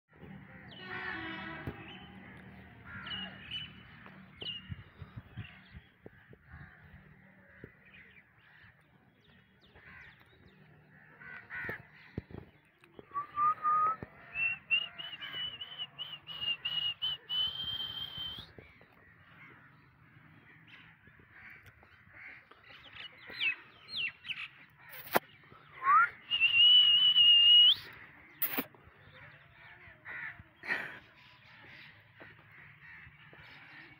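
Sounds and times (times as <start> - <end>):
crows cawing: 10.9 - 12.4, 18.6 - 23.6, 27.9 - 33.9.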